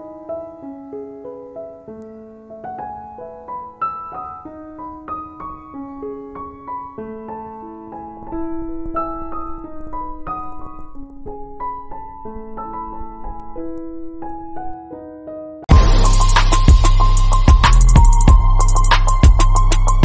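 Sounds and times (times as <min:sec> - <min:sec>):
gentle piano music: 0:00.0 - 0:20.0
low rumble: 0:15.7 - 0:20.0.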